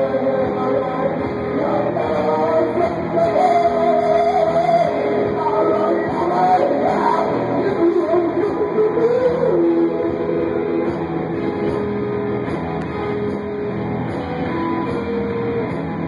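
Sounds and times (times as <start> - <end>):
person singing: 0.0 - 11.8.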